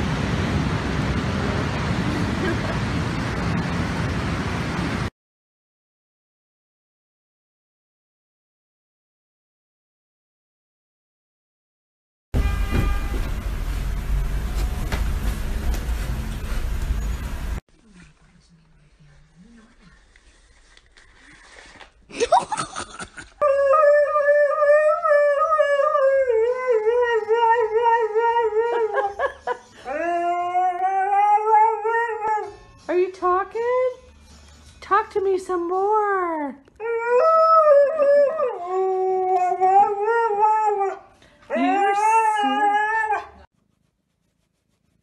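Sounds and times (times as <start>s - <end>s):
dog howling: 36.8s - 43.5s.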